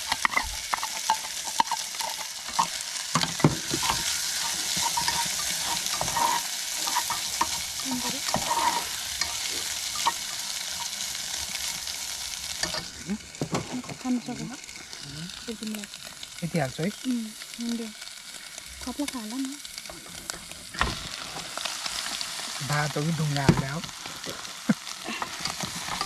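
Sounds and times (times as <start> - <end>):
utensil scraping and tapping pan: 0.0 - 11.0, 12.6 - 14.0
rice sizzling in a pan: 0.0 - 26.0.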